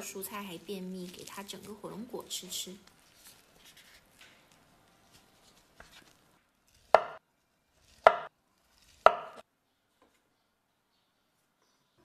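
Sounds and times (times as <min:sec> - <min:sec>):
soft handling of fruit: 0:00.4 - 0:09.1
knife chopping on wooden board: 0:06.8 - 0:07.2, 0:07.8 - 0:08.3, 0:08.9 - 0:09.4.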